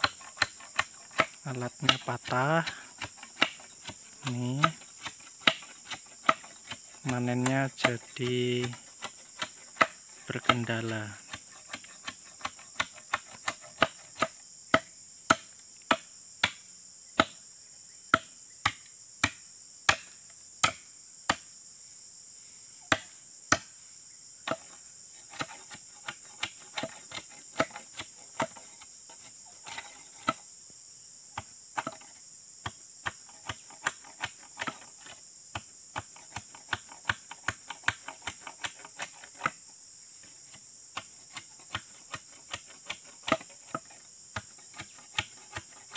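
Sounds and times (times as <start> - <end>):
blade chopping wood: 0.0 - 16.6, 17.2 - 17.4, 18.1 - 21.5, 22.9 - 23.7, 24.4 - 30.4, 31.4 - 39.6, 40.2 - 45.9
crickets droning: 0.0 - 45.9.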